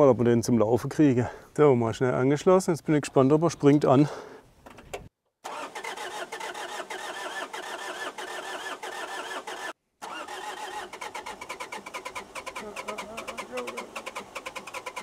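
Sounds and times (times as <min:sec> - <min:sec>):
truck engine cranking: 0:04.6 - 0:15.0.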